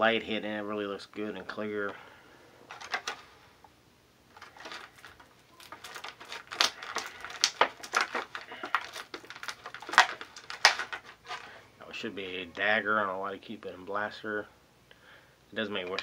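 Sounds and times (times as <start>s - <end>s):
plastic packaging crinkling: 2.7s - 3.2s, 4.3s - 11.6s.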